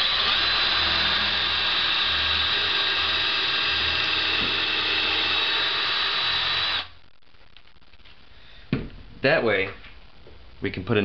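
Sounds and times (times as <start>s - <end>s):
cordless drill drilling into wood: 0.0s - 6.9s.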